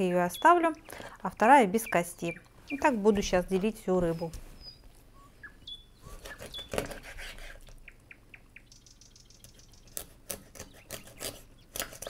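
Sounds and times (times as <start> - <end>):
bird chirps: 0.2 - 3.4, 4.1 - 6.9, 7.8 - 10.0.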